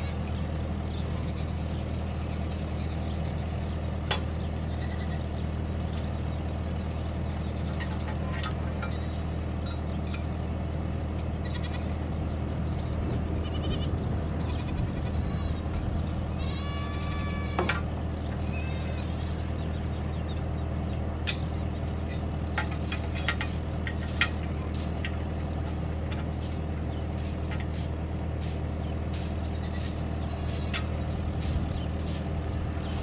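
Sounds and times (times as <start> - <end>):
goats bleating: 0.0 - 2.9, 4.4 - 5.4, 8.7 - 9.3, 11.2 - 12.3, 13.0 - 19.8, 29.2 - 31.2.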